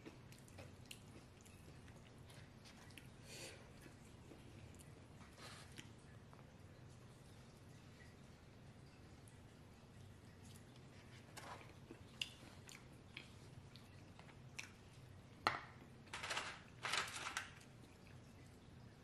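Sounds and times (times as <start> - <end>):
soft chewing: 0.0 - 16.0, 17.5 - 19.0
crunchy chip rustles: 16.1 - 17.8.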